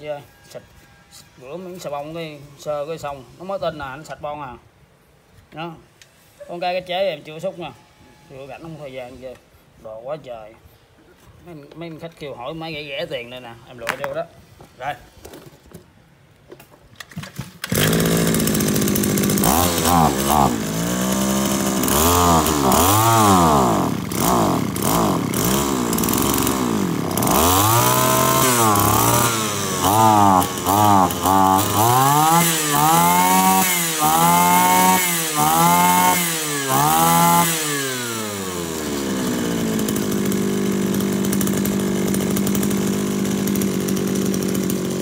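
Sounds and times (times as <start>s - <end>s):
brush cutter engine revving: 17.1s - 45.0s.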